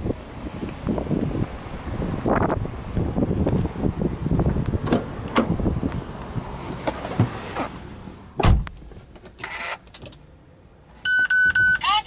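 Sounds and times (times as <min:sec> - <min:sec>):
wind on microphone: 0:00.0 - 0:06.6
rustling and clicks in car: 0:04.5 - 0:10.3
car door shutting: 0:04.8 - 0:05.6, 0:06.6 - 0:07.8, 0:08.4 - 0:10.1.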